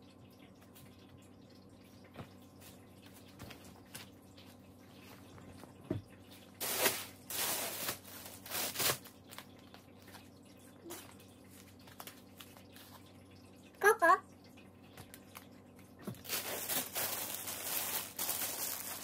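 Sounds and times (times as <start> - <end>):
packaging crinkling and rustling: 6.6 - 10.2, 16.1 - 19.0.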